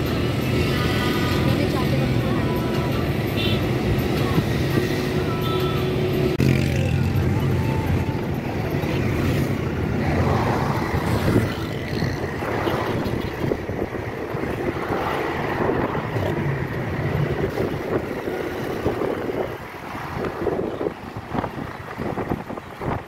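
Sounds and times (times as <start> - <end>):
car road and engine noise: 0.0 - 23.0
wind rushing over microphone: 7.3 - 23.0.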